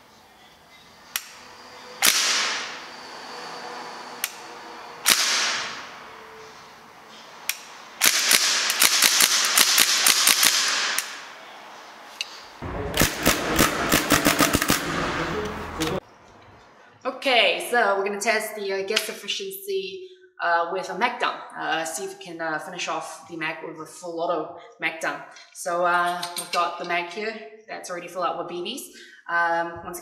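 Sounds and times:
airsoft gun shots: 2.0s - 2.8s, 5.0s - 5.8s, 8.0s - 11.2s, 12.9s - 15.6s.

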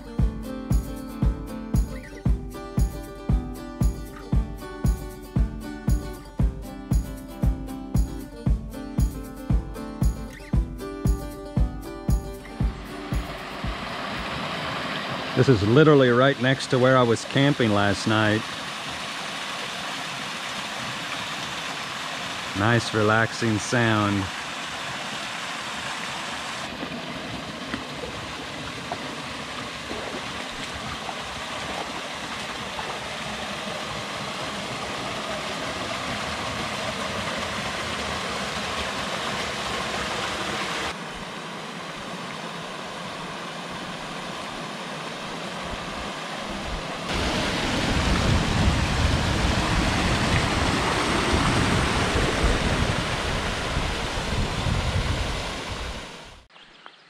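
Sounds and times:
creek water rushing over falls: 12.4s - 56.5s.

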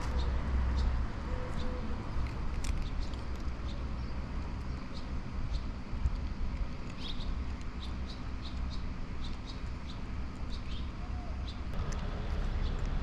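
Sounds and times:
steady low rumble: 0.0s - 13.0s
small bird chirping: 2.7s - 5.8s, 6.8s - 11.7s.

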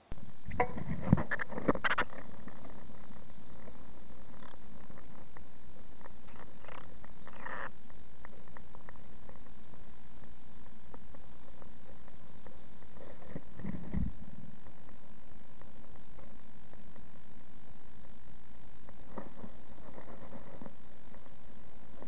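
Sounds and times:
nestlings peeping: 0.0s - 22.0s
steady hiss: 0.0s - 22.0s
bird scratching and rustling: 19.1s - 21.3s.

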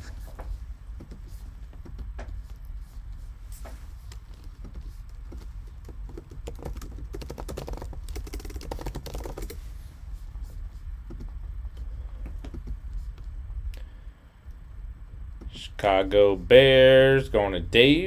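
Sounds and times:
low steady hum: 0.0s - 18.0s
keyboard typing: 4.4s - 9.6s.

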